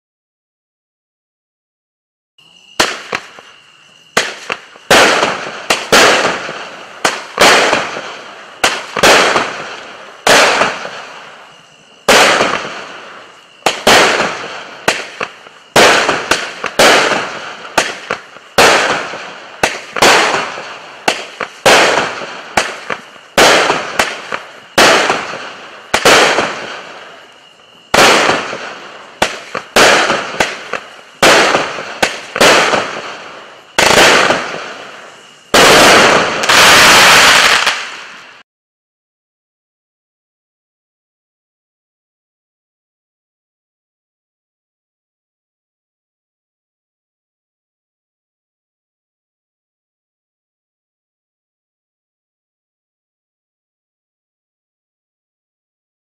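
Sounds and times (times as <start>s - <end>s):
firework cake shots: 2.7s - 38.4s.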